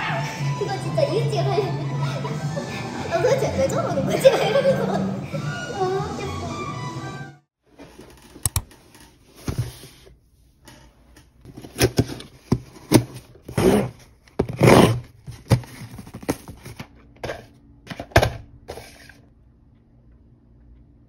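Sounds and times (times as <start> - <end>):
sharp clicks and taps: 8.4 - 8.7
objects scraping: 18.7 - 19.3.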